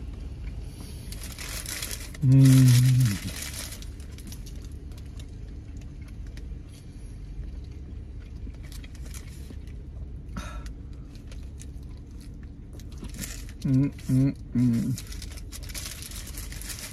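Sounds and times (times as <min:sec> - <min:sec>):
low rumble in car cabin: 0:00.0 - 0:16.9
paper wrapper crinkling: 0:01.1 - 0:05.3, 0:11.2 - 0:14.1, 0:14.8 - 0:16.9.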